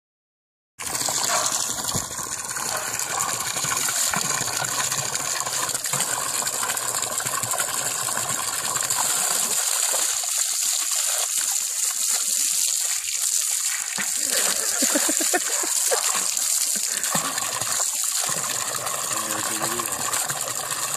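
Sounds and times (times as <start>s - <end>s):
horse biting at water: 0.8s - 6.9s, 14.0s - 20.7s
garden hose spraying water: 8.9s - 20.9s.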